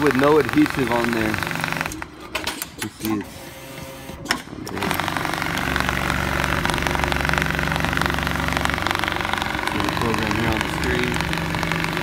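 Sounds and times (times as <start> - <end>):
motor hum: 3.5 - 12.0.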